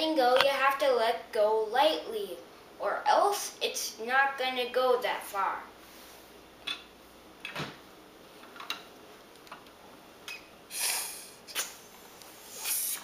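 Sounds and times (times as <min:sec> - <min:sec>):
breath blown through a straw: 0:10.7 - 0:11.8, 0:12.4 - 0:13.0.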